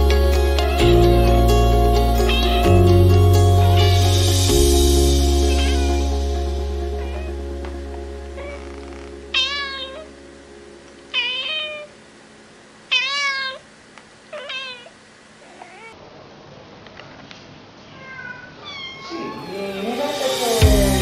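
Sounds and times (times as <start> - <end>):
background music: 0.0 - 10.8, 19.4 - 21.0
cat meowing: 2.2 - 2.9, 5.4 - 6.0, 7.0 - 7.3, 8.4 - 10.1, 11.1 - 11.9, 12.9 - 13.7, 14.3 - 16.0, 17.9 - 19.9.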